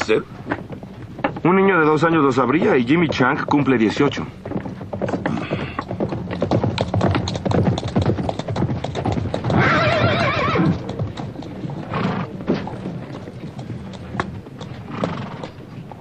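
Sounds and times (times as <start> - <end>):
horse hooves clopping: 0.0 - 16.0
horse whinnying: 9.4 - 11.0, 11.8 - 12.8, 14.8 - 15.6.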